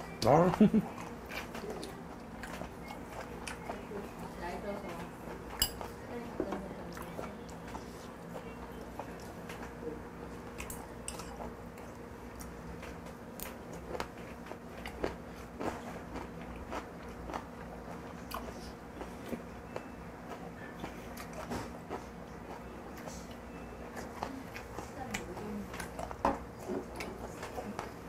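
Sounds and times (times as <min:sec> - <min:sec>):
person chewing crunchy food: 0:00.2 - 0:03.9, 0:10.4 - 0:28.0.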